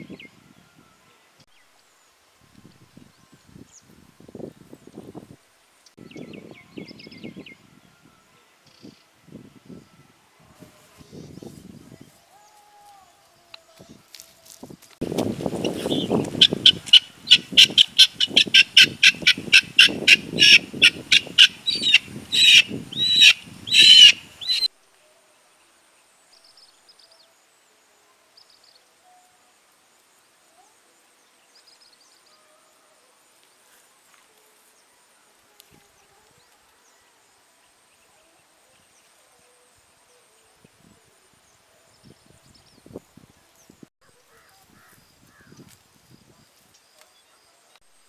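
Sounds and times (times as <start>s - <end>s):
guinea fowl calling harshly: 15.6s - 24.7s.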